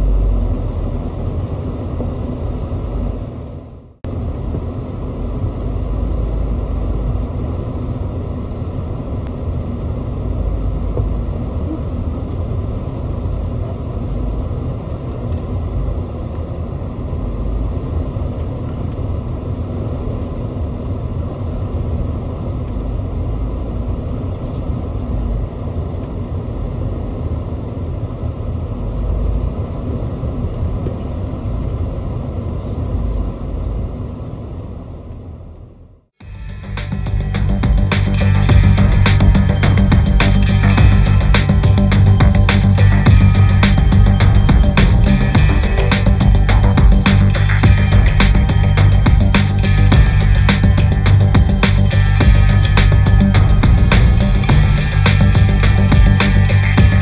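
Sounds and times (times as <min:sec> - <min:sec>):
faint steady hum: 0:00.0 - 0:57.0
vehicle engine rumble on trail: 0:36.2 - 0:57.0.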